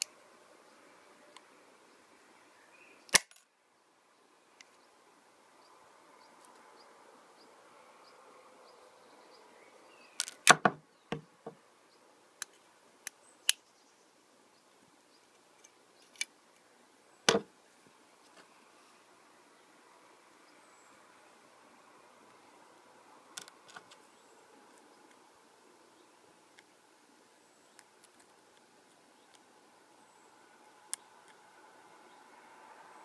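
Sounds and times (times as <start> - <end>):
sim card cutter clicking and snapping: 3.1 - 3.4.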